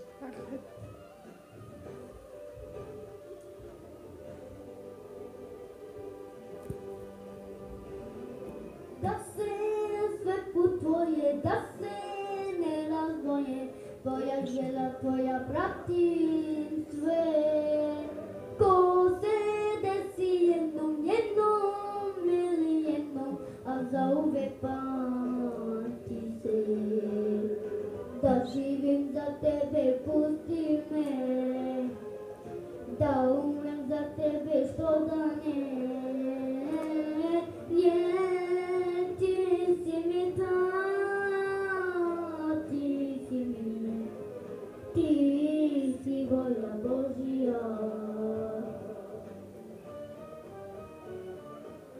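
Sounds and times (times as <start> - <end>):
boy singing into microphone: 9.0 - 32.0, 33.0 - 44.2, 44.9 - 49.4.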